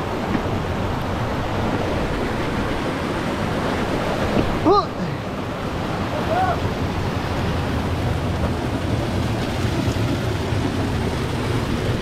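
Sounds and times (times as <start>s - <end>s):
person exclaiming: 4.6s - 5.2s, 6.1s - 6.7s.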